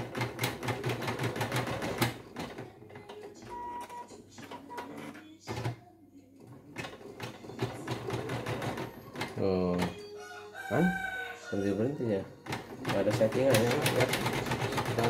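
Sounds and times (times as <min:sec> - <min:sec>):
embroidery machine stitching: 0:00.0 - 0:05.7, 0:06.5 - 0:10.0, 0:12.4 - 0:15.0.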